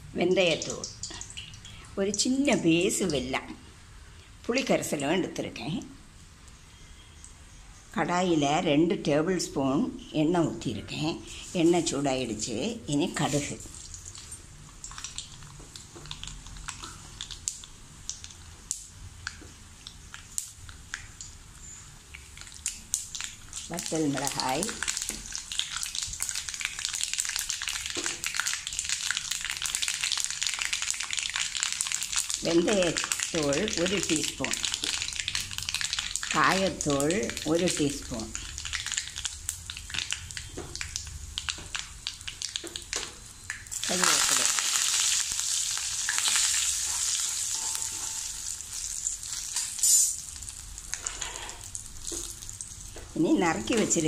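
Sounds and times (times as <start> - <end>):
seeds sizzling in hot oil: 13.0 - 54.0
small crackling pops: 13.8 - 47.0.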